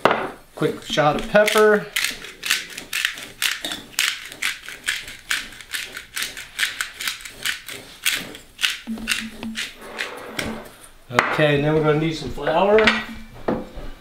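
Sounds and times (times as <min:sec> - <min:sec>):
pepper mill grinding: 0:00.6 - 0:10.5.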